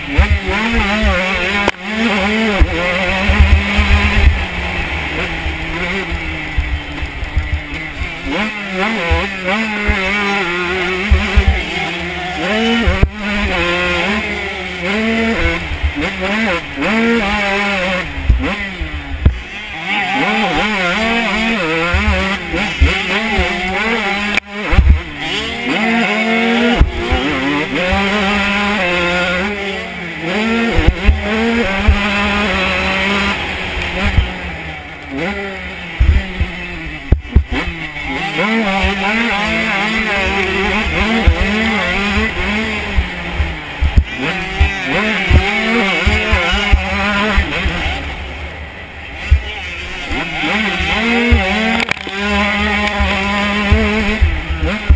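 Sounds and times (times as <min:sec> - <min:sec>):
motocross bike engine revving: 0:00.0 - 0:54.9
low thumps: 0:35.9 - 0:37.9, 0:40.7 - 0:48.2.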